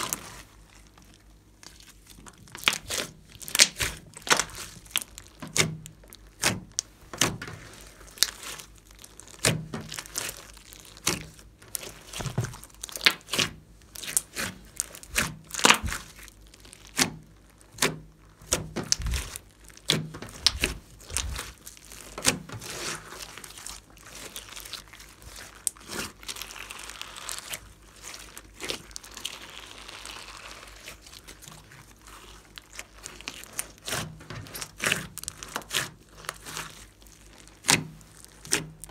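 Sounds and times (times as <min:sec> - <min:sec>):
slime popping and crackling: 0:00.0 - 0:38.9.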